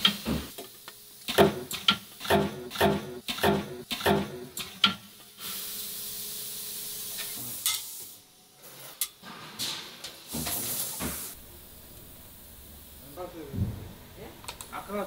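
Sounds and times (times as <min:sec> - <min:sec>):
welder hiss: 0:05.3 - 0:09.0, 0:10.2 - 0:11.9.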